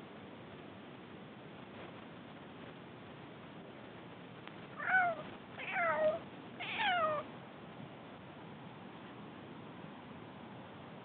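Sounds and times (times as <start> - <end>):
cat meowing: 4.8 - 7.3.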